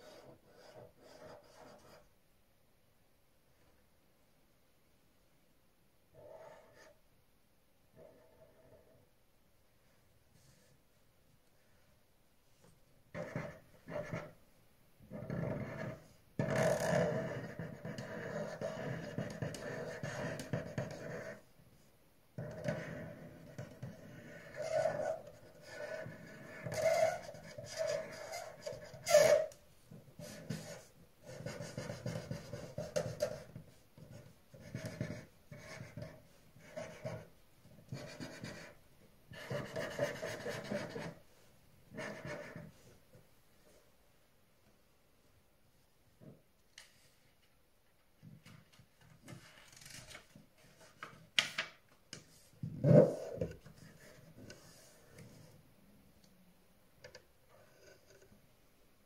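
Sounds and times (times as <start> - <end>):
felt-tip pen scratching paper: 0.0 - 2.0, 15.1 - 21.4, 22.4 - 29.5, 30.2 - 37.3, 37.9 - 41.2, 41.9 - 42.7, 52.8 - 55.0.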